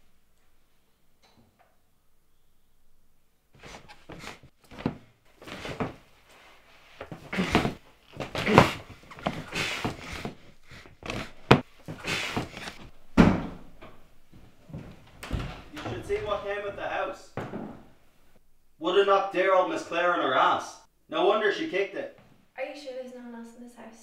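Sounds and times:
heavy thud: 0:11.0 - 0:18.0
indoor thumps and knocks: 0:11.0 - 0:18.0.

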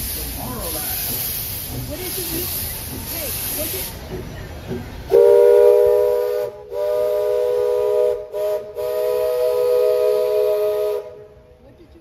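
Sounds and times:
steam locomotive chime whistle: 0:05.1 - 0:11.4.

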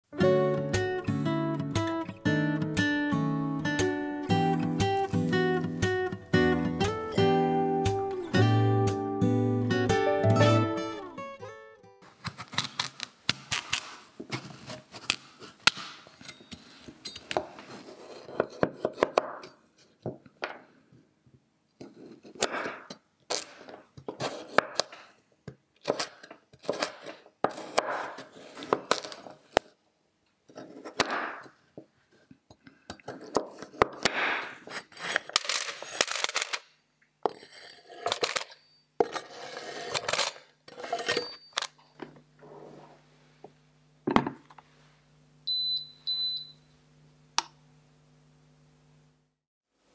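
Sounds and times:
knife slicing pumpkin: 0:25.8 - 0:28.8.

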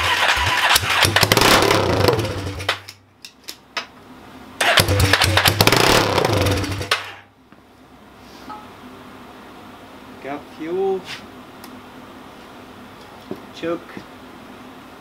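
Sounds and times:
quad engine sputtering: 0:00.0 - 0:02.7, 0:04.6 - 0:07.2.

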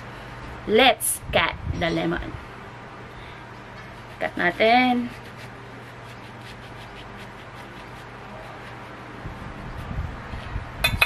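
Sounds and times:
steady low hum: 0:00.0 - 0:11.0
knife scraping through lemon peel: 0:03.9 - 0:09.9.

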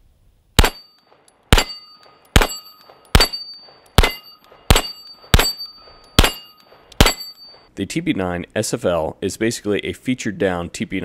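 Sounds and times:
pistol shots: 0:00.6 - 0:07.4
steel targets ringing: 0:00.6 - 0:07.7.

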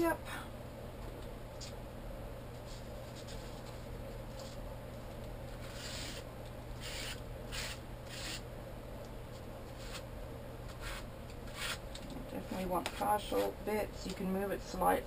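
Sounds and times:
steady low hum: 0:00.0 - 0:15.0
paper rubbing: 0:05.6 - 0:06.2, 0:06.8 - 0:08.4, 0:09.7 - 0:10.0, 0:10.8 - 0:11.8.

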